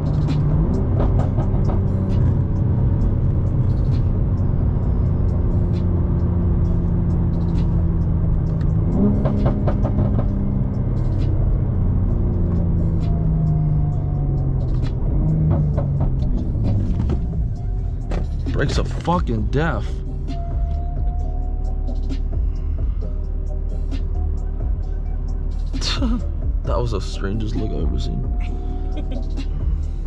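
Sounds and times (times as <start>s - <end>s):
car engine from inside cabin: 0.0s - 22.1s
engine revs rising on downshift: 0.0s - 26.6s.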